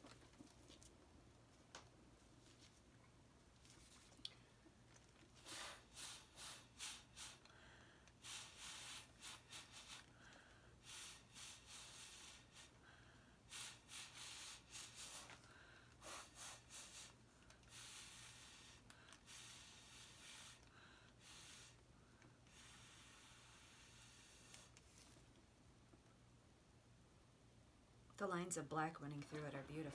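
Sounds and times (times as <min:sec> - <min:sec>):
breath puffs through a straw: 0:05.3 - 0:24.8.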